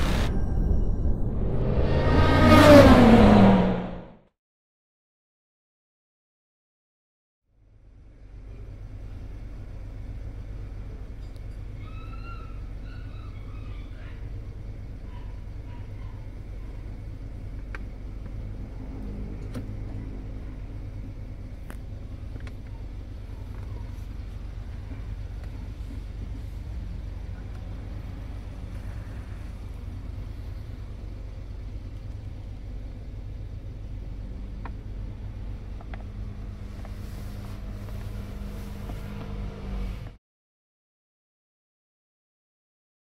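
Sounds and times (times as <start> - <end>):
car engine idling: 7.6 - 40.1.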